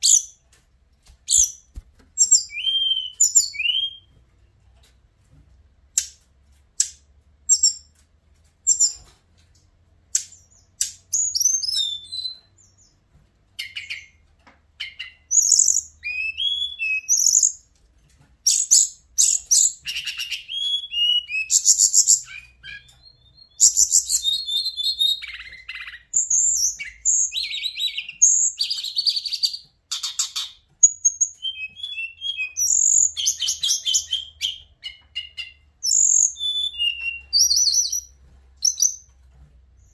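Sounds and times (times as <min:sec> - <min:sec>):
bird whistling and trilling: 0:00.0 - 0:00.3, 0:01.3 - 0:01.6, 0:02.2 - 0:04.1, 0:10.4 - 0:12.8, 0:13.6 - 0:14.2, 0:14.8 - 0:17.6, 0:18.5 - 0:39.0
bird chirps: 0:00.0 - 0:00.4, 0:01.3 - 0:04.1, 0:07.5 - 0:07.9, 0:08.6 - 0:09.1, 0:10.2 - 0:13.0, 0:13.6 - 0:14.2, 0:14.8 - 0:17.6, 0:18.4 - 0:39.1.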